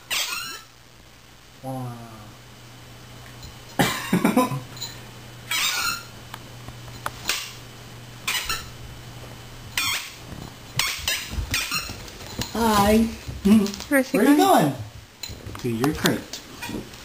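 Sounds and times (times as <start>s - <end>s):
squeaky dog toy squeaking: 0.1s - 0.7s, 5.5s - 6.1s, 8.2s - 8.7s, 9.8s - 10.2s, 10.8s - 12.0s.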